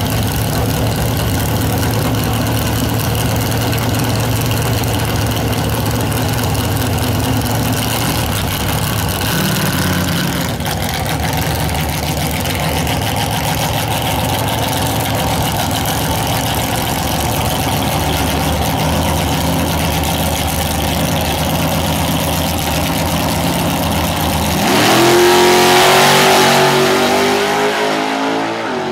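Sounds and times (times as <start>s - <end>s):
dragster engine idling and revving: 0.0s - 28.9s.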